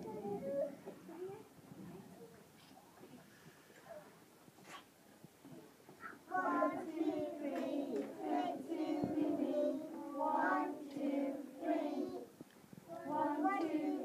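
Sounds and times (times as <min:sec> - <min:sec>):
young children singing: 0:06.0 - 0:14.0.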